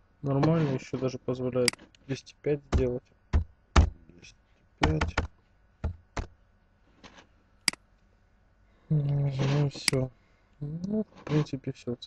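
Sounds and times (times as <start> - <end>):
keyboard keystrokes: 4.8 - 5.3.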